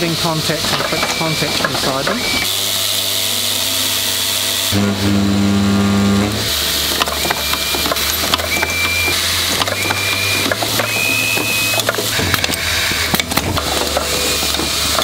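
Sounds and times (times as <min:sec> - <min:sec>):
machine clatter of clicks and clacks: 0:00.6 - 0:02.4, 0:06.9 - 0:15.0.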